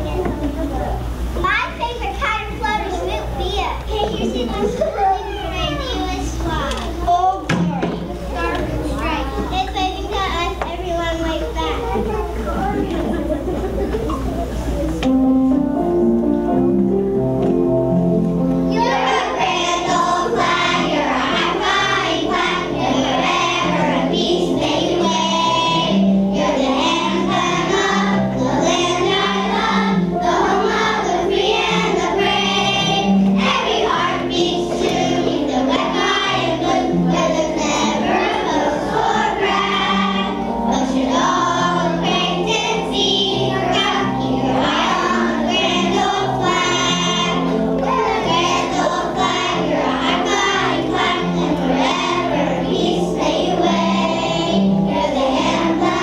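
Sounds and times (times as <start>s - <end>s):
instrumental accompaniment: 0.0s - 56.0s
children singing: 18.7s - 56.0s.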